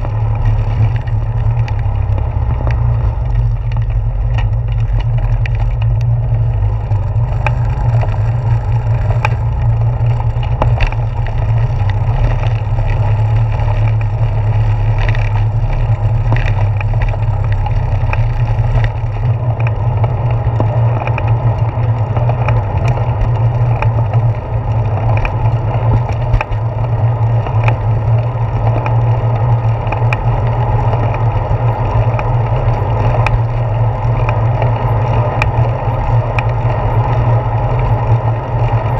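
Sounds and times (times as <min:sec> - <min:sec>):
bicycle clicks and rattles: 0:00.0 - 0:38.9
wind rumble: 0:00.0 - 0:38.9.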